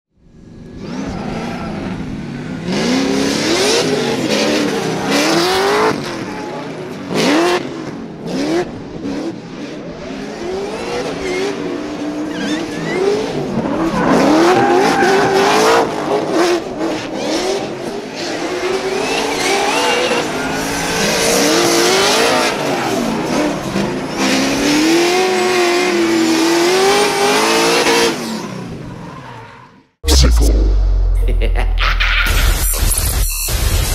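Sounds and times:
car engines revving: 0.3 - 33.0
tires squealing: 0.8 - 7.4, 10.8 - 29.9.

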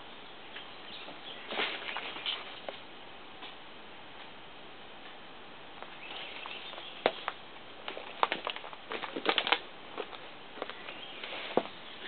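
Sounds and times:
brush rustling: 1.1 - 3.6, 5.8 - 12.0
footsteps snapping twigs: 5.8 - 11.4.

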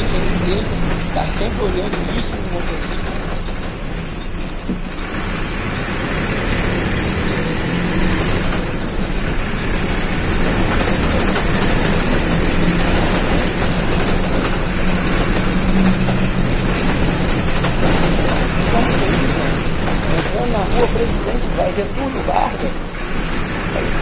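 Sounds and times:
bus diesel engine running: 0.0 - 24.0
road and body noise: 0.0 - 24.0.

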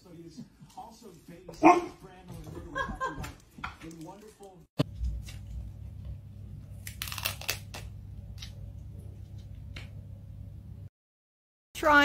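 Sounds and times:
low steady hum: 4.8 - 10.9
cat claws ripping wallpaper: 6.8 - 7.9.

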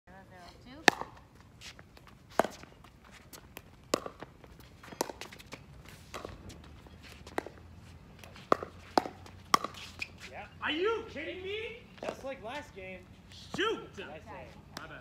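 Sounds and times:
paddles hitting plastic ball: 0.8 - 1.2, 3.5 - 4.3, 8.5 - 9.8
footsteps on hard court: 0.9 - 10.3.

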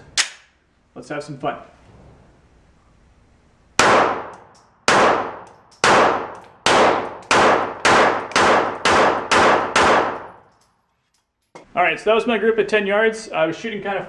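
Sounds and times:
pistol shots ringing indoors: 3.8 - 10.8.

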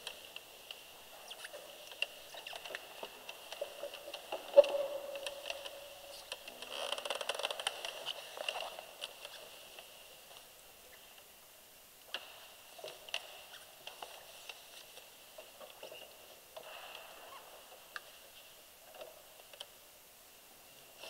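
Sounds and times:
rustling: 0.0 - 11.3.

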